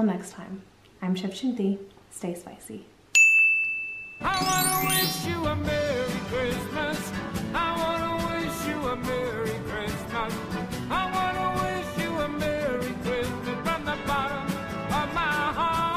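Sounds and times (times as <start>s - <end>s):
person singing: 4.3s - 6.3s.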